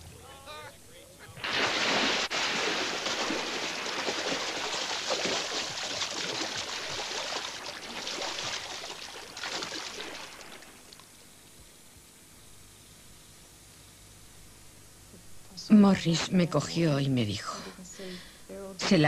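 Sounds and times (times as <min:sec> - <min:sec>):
water splashing and churning: 0:01.4 - 0:11.0.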